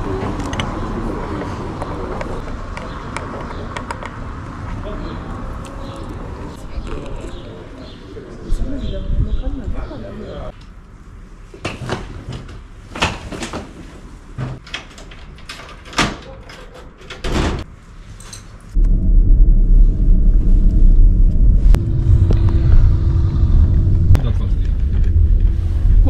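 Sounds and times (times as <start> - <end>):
low rumble inside car: 18.8 - 26.0.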